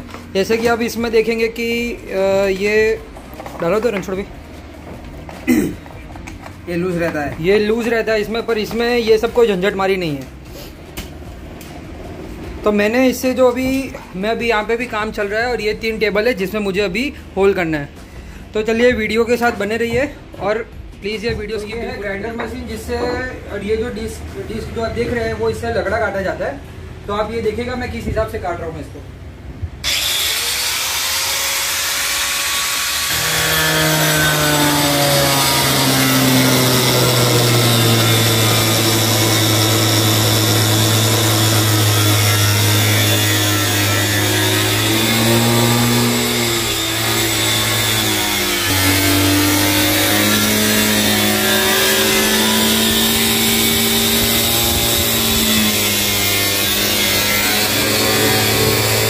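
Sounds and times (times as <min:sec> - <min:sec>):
angle grinder cutting wood: 0:29.8 - 0:59.0.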